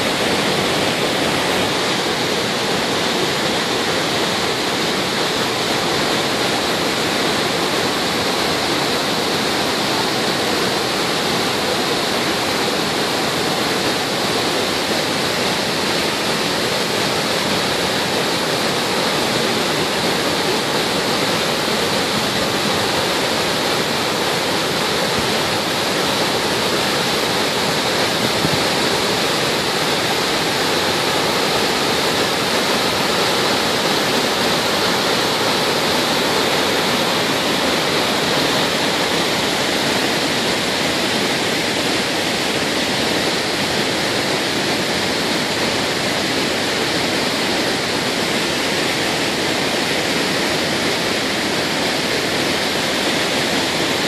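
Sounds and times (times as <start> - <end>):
waterfall rushing: 0.0 - 54.0.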